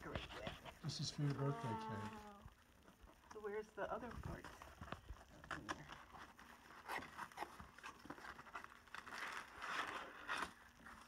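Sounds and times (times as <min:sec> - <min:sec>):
paper packing rustling: 0:04.4 - 0:11.0.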